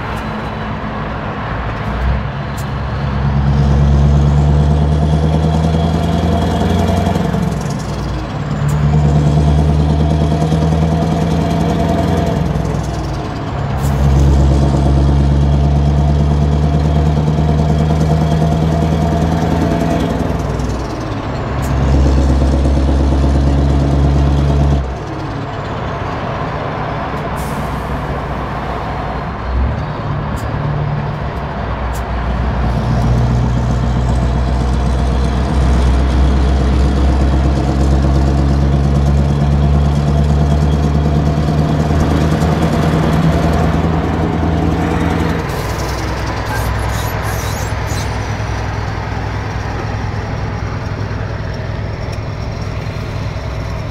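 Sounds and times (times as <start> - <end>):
truck engine pulling: 0.0 - 53.9.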